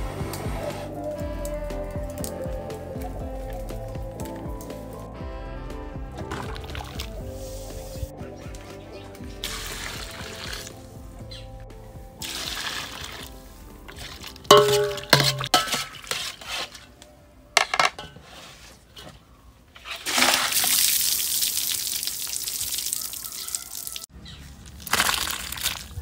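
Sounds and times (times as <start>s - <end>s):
water pouring and splashing: 6.2s - 11.0s, 12.2s - 16.8s, 19.8s - 26.0s
metal basin clanking: 13.9s - 16.8s.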